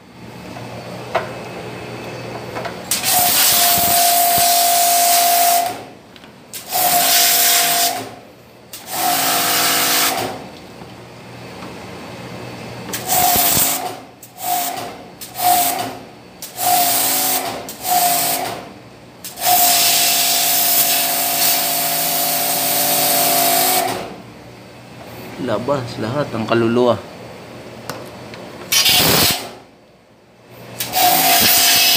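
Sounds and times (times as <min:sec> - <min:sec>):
machine whine: 0:00.0 - 0:10.4
pressure washer spraying metal: 0:02.9 - 0:05.7, 0:06.6 - 0:08.0, 0:13.0 - 0:13.8, 0:14.4 - 0:14.8, 0:19.4 - 0:23.9, 0:28.7 - 0:29.5, 0:30.8 - 0:31.9.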